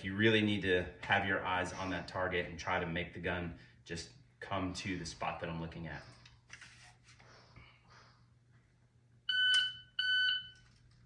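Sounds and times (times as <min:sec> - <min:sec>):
electronic timer beeps: 0:09.3 - 0:10.6.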